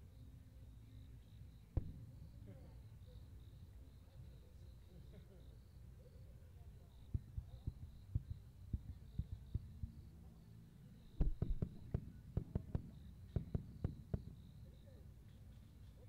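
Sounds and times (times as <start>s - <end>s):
firework shells bursting: 1.8s - 2.4s, 11.2s - 14.6s.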